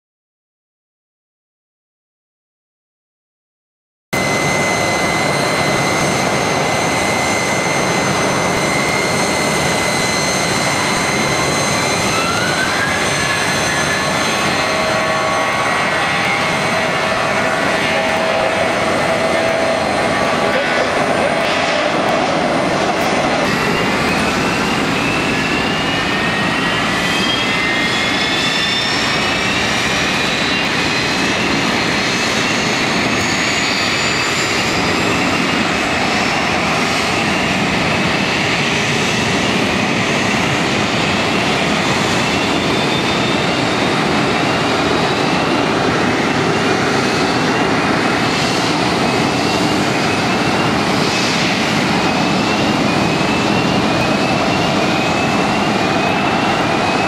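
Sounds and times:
jet engines whining: 0:04.2 - 0:57.0
short rising whistles: 0:23.5 - 0:31.1.

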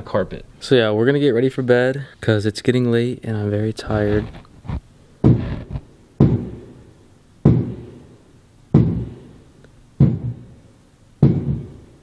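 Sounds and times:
heavy banging thuds: 0:05.2 - 0:06.8, 0:07.4 - 0:08.1, 0:08.7 - 0:09.4, 0:10.0 - 0:10.6, 0:11.2 - 0:11.9.

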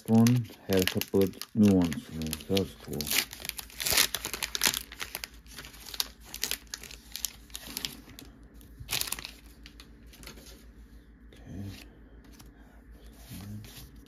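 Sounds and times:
foil wrapper crinkling and tearing: 0:00.0 - 0:10.4.

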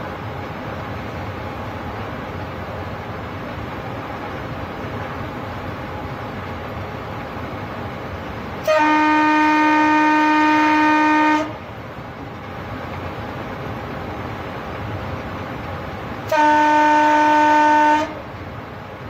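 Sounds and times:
train rumbling on track: 0:00.0 - 0:19.0
locomotive horn blast: 0:08.6 - 0:11.6, 0:16.3 - 0:18.3.

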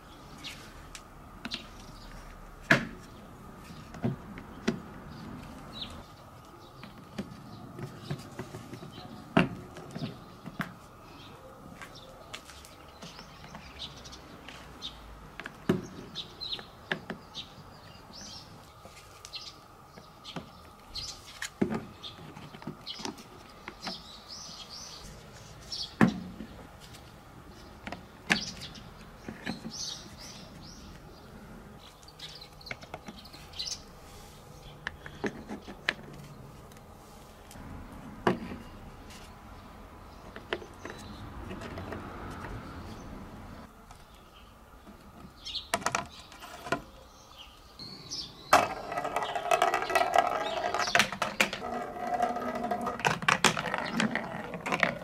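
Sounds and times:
small birds chirping: 0:00.0 - 0:36.9, 0:38.2 - 0:51.7
wooden and plastic pieces knocking: 0:48.5 - 0:55.0.

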